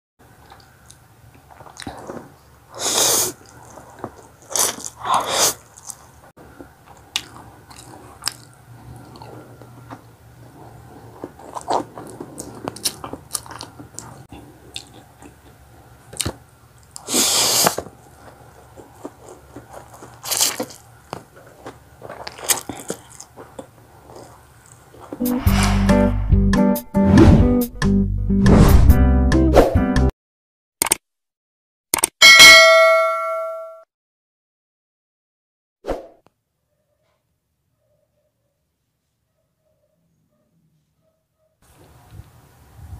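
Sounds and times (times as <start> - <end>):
chewing and mouth smacking: 0.4 - 2.4, 3.1 - 25.2
slurping noodles: 1.6 - 6.1, 7.0 - 15.4, 16.9 - 25.8.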